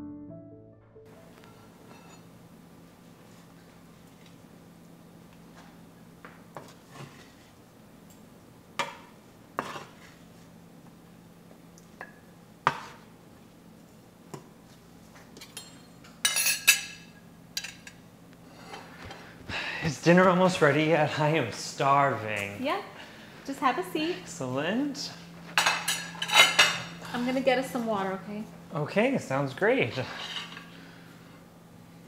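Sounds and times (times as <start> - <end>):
dishes and cutlery clinking: 1.4 - 2.3, 15.3 - 18.0, 25.5 - 27.0.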